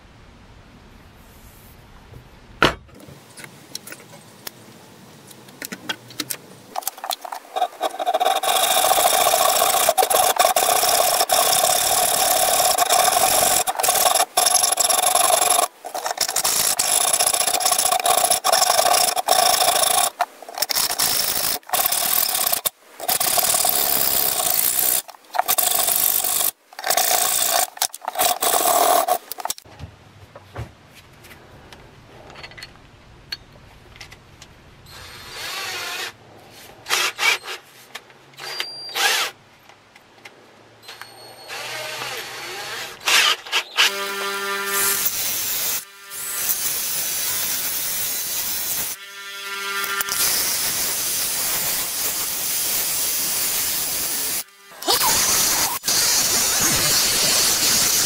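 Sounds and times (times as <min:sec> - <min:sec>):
hacksaw rasping through metal: 0:06.8 - 0:29.6.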